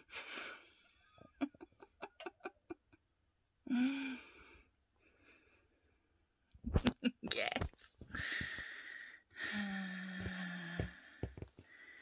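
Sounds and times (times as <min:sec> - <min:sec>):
person sighing: 0:03.7 - 0:04.5.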